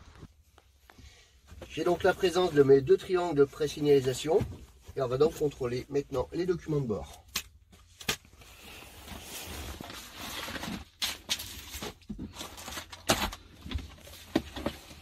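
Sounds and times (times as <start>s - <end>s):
paper and plastic sleeves rustling: 7.8s - 15.0s.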